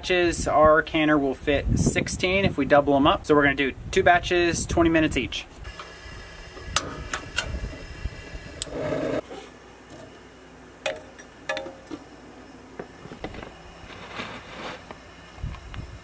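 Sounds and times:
gas burner lighting: 5.6 - 9.3.

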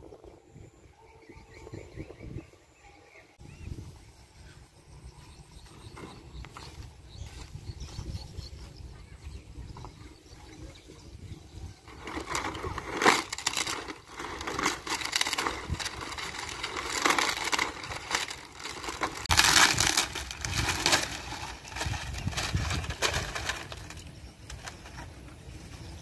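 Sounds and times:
dry palm fronds crackling: 11.8 - 26.0.

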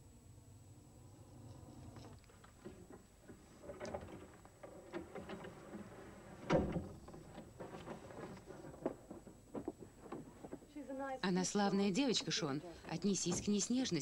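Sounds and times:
wheeled bed sliding and scraping: 2.3 - 10.7.

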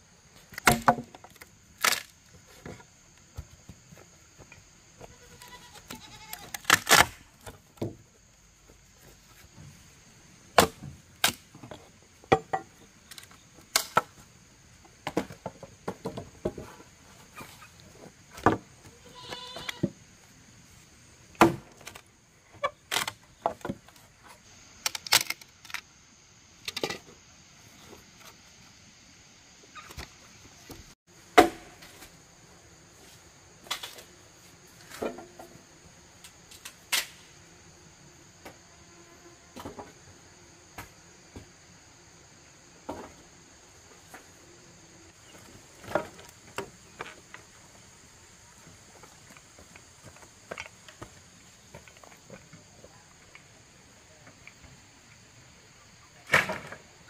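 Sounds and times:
insects chirring: 0.0 - 57.0
blade chopping firewood: 0.5 - 2.1, 10.6 - 12.7, 21.4 - 22.0, 31.3 - 31.9
wood splintering: 0.5 - 2.1, 6.4 - 7.5.

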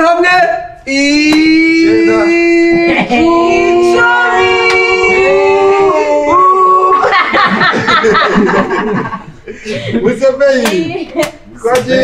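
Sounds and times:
person singing long notes: 1.2 - 7.1
many voices singing: 1.2 - 7.2
people clapping: 4.3 - 5.3.

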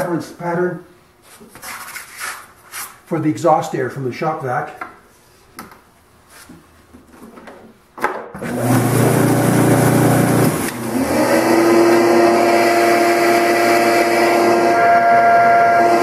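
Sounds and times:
vacuum blower motor whining: 8.4 - 16.0.

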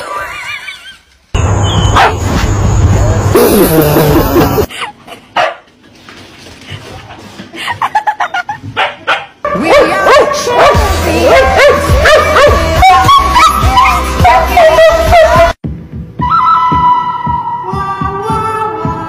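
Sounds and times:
background music: 1.4 - 4.7, 9.5 - 19.0
dog barking: 2.0 - 2.2, 5.4 - 5.6, 8.8 - 13.0.

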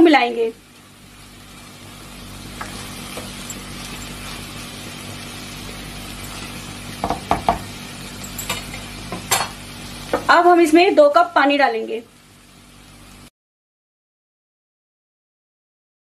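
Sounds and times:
food sizzling in a pan: 0.0 - 13.3
spatula knocking against pan: 7.0 - 7.7.

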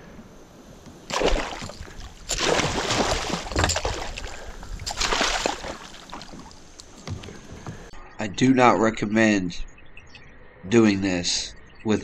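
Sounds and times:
fish thrashing and splashing water: 1.1 - 7.7.

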